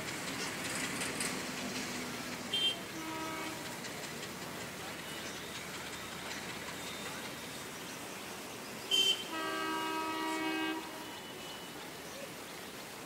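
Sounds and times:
background hiss: 0:00.0 - 0:13.0
locomotive horn blast: 0:02.5 - 0:03.7, 0:08.9 - 0:11.8.

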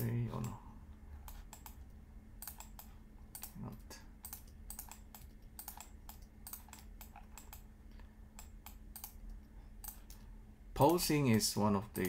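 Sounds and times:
computer keyboard keystrokes: 0:01.2 - 0:07.7, 0:08.4 - 0:10.2.

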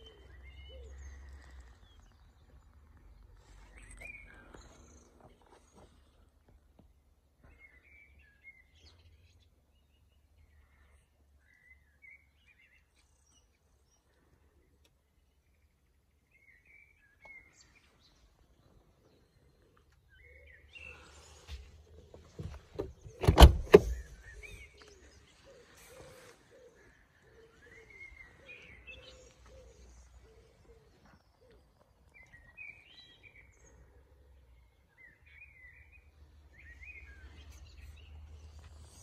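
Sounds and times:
birds chirping: 0:00.0 - 0:39.0
car door shutting: 0:22.2 - 0:24.2.

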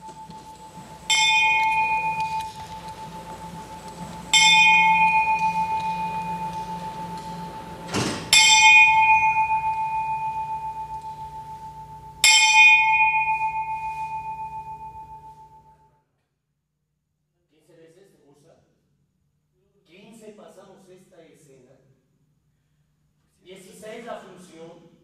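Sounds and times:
bell ringing: 0:00.0 - 0:15.8.

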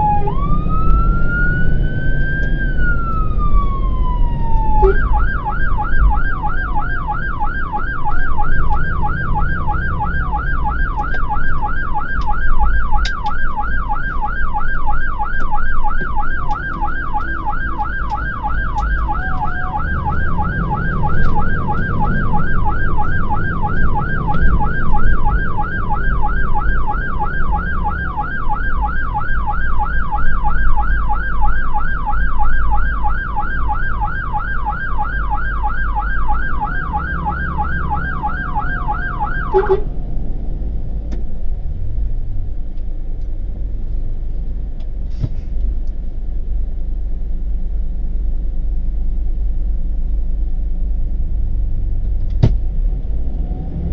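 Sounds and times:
fire engine siren yelping: 0:00.0 - 0:40.4
truck engine and road rumble: 0:00.0 - 0:53.9.

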